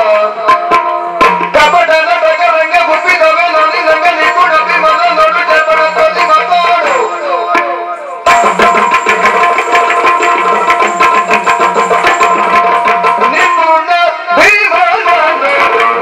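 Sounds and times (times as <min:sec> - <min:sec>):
rapid drum strokes: 0:06.8 - 0:13.7.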